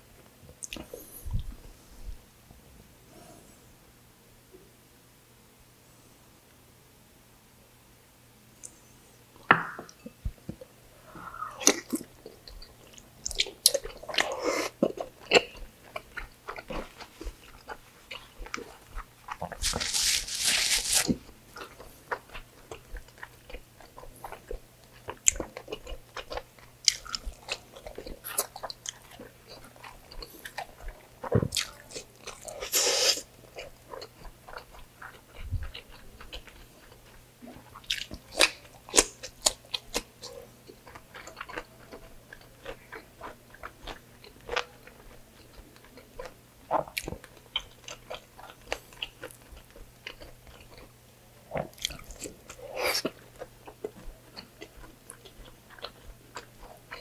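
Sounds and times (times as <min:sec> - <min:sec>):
wet chewing and mouth smacks: 0:11.6 - 0:50.9, 0:51.6 - 0:57.0.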